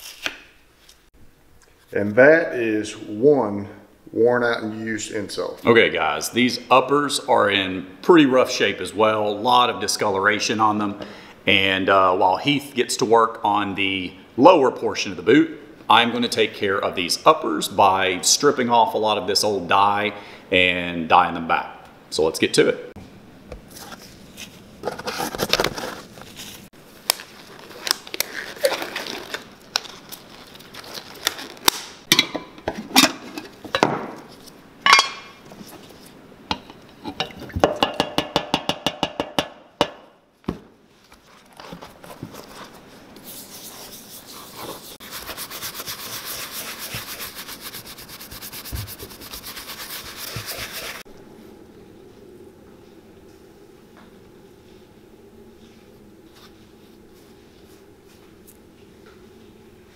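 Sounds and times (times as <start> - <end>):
brisk rubbing: 41.6 - 51.1.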